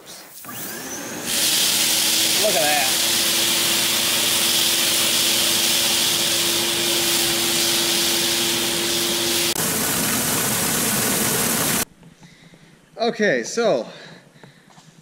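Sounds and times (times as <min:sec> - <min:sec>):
vacuum cleaner sucking beans: 0:00.0 - 0:11.9.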